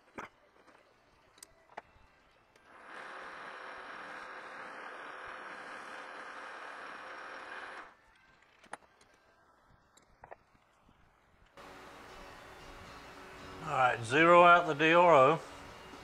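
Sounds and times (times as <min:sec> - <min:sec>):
metal lathe whirring: 0:02.7 - 0:07.9.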